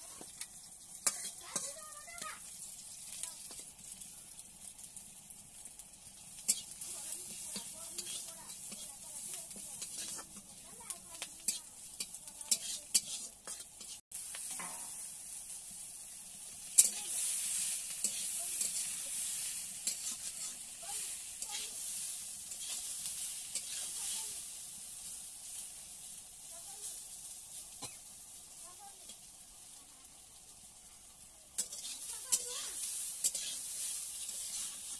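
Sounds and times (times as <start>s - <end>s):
onions frying in oil: 0.0s - 34.9s
vegetables sizzling: 0.0s - 34.9s
metal spatula scraping pan: 6.4s - 15.0s, 16.7s - 24.4s, 31.6s - 34.9s.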